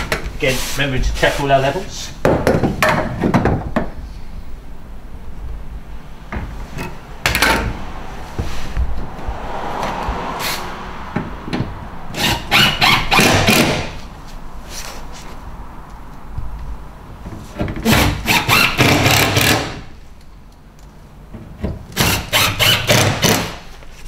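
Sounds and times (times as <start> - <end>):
tool scraping: 12.1 - 15.4.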